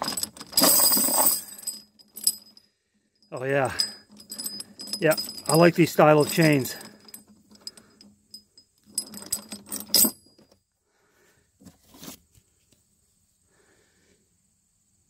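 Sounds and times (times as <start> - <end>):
steel chains clinking and rattling: 0.0 - 10.6.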